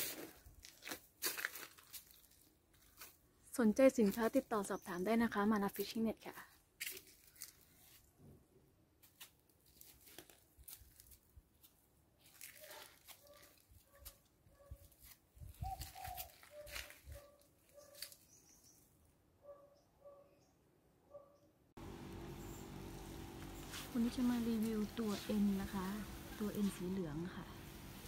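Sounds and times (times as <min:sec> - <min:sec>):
small bird chirping: 0:17.7 - 0:19.0, 0:22.1 - 0:23.9.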